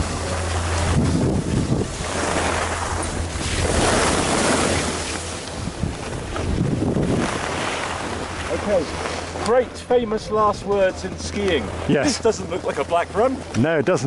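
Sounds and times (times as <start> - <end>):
wind buffeting microphone: 0.0 - 12.0
skis sliding on snow: 0.7 - 9.1.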